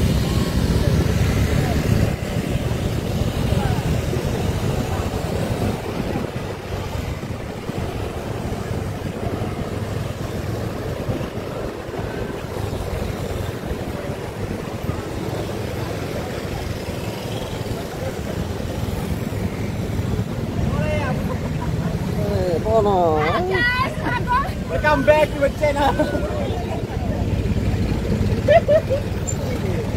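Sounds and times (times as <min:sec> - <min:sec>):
wind buffeting microphone: 0:00.0 - 0:17.0
road traffic rumble: 0:00.0 - 0:29.9.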